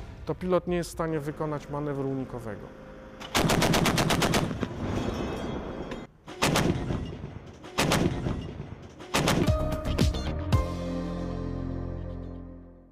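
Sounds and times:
autocannon firing bursts: 0:03.3 - 0:04.7, 0:06.3 - 0:09.5
gunfire echoing: 0:06.3 - 0:09.5.

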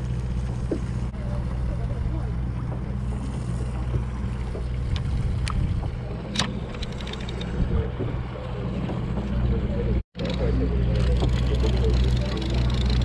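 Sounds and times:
boat engine humming: 0:00.0 - 0:13.0
fishing reel clicks: 0:11.0 - 0:13.0.

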